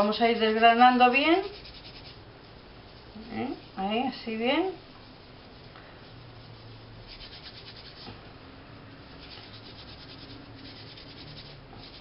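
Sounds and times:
dry herbs rubbed between hands: 1.4 - 2.2, 5.0 - 8.1, 9.2 - 12.0.

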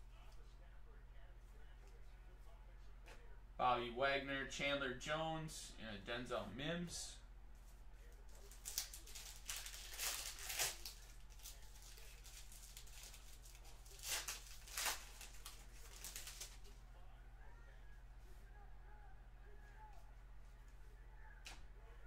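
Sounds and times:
low steady hum: 0.0 - 22.0
foil wrapper crinkling: 8.3 - 16.7.

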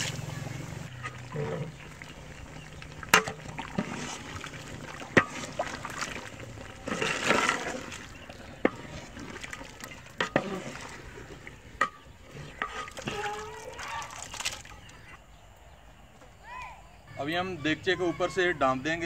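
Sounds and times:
liquid sloshing in a pot: 0.9 - 15.1.

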